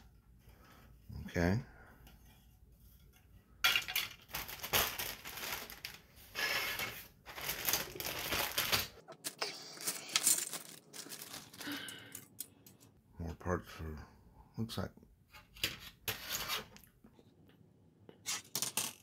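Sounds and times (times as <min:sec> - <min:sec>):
plastic parts clattering: 0:03.6 - 0:12.9
rustling: 0:04.2 - 0:12.2.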